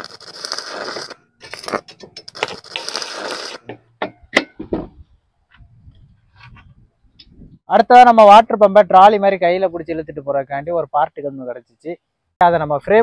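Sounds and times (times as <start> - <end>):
electric arc welding crackling: 0.0 - 3.6
sharp metal knocks: 3.6 - 5.0.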